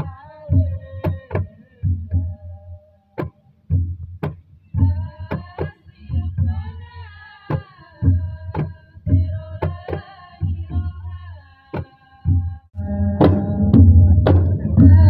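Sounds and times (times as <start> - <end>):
hand drums playing dance music: 0.0 - 2.4, 3.2 - 15.0.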